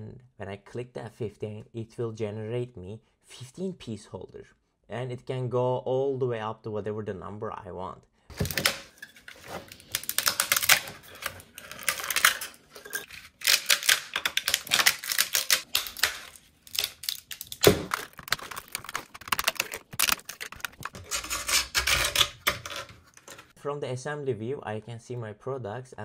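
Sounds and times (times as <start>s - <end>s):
plastic supports snapping: 8.3s - 12.6s, 13.3s - 23.5s.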